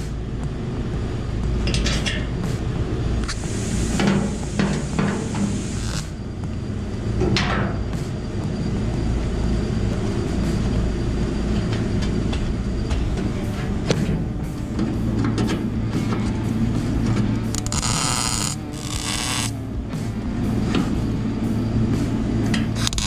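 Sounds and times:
low rumble: 0.0s - 23.0s
welding crackle: 5.5s - 6.1s, 17.5s - 19.6s, 22.8s - 23.0s.

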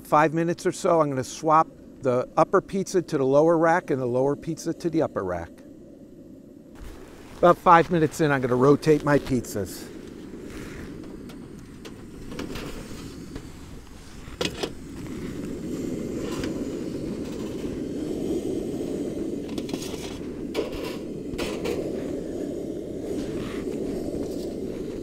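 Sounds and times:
stove burner running: 8.8s - 25.0s.

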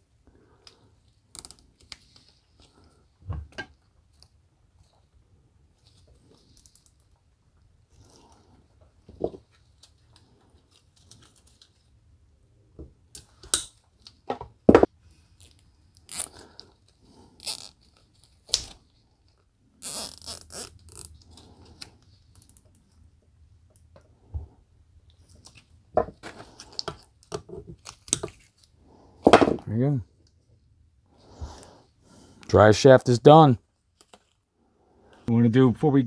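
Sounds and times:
plastic zip tie clicking: 1.3s - 2.1s, 15.4s - 16.7s, 17.4s - 18.8s, 19.8s - 22.7s
zip tie rasping: 15.2s - 18.8s, 19.8s - 22.7s.

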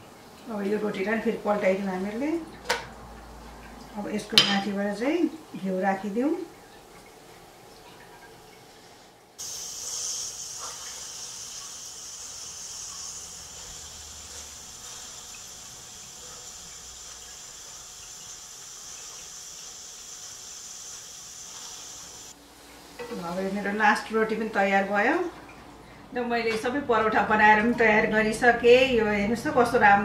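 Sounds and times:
ghee sizzling in frying pan: 9.4s - 24.0s.

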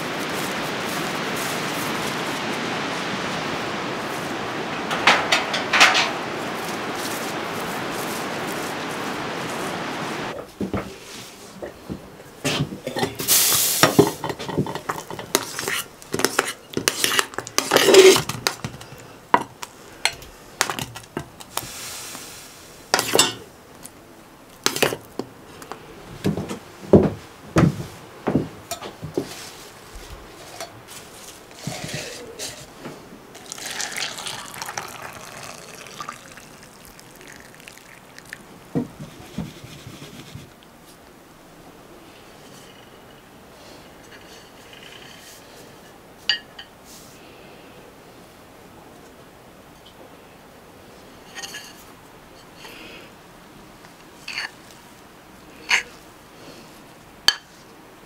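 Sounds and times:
dishes and utensils clinking: 4.9s - 6.2s, 12.5s - 18.8s, 22.9s - 23.5s, 30.4s - 30.8s, 33.4s - 38.4s, 44.0s - 45.4s, 51.3s - 51.8s
water running: 33.4s - 40.3s.

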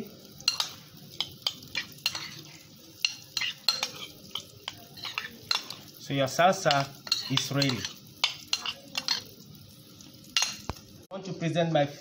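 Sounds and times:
metal spoon scraping ceramic bowl: 0.5s - 5.9s, 6.7s - 9.3s.

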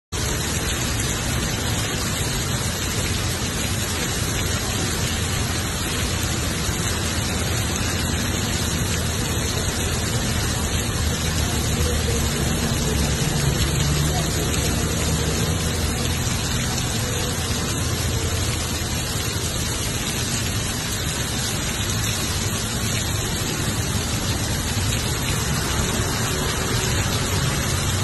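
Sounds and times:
heavy rain on pavement: 0.1s - 28.0s.

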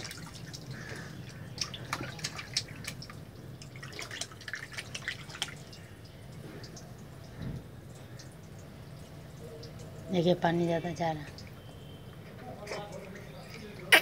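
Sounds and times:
baby splashing water: 0.0s - 7.3s, 12.5s - 14.0s.

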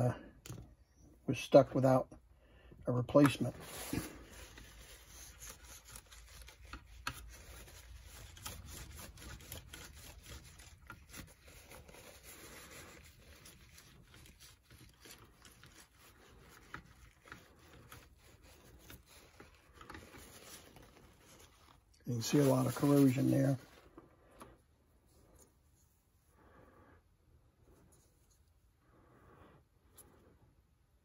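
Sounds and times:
hands rubbing small parts: 3.1s - 26.3s.

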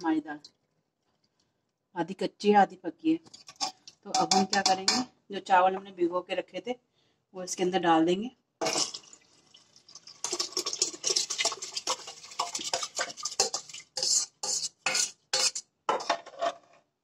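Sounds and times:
spoon scraping steel bowl: 3.3s - 5.1s, 10.2s - 16.8s.

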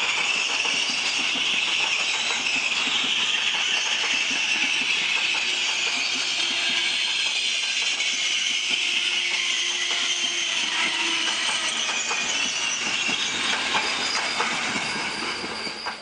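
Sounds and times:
wheels clicking over rail joints: 0.0s - 10.4s
train wheels rushing on rails: 0.0s - 16.0s.

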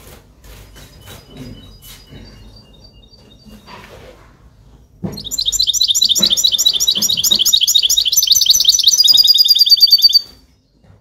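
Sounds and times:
goldfinch singing: 5.1s - 10.4s.

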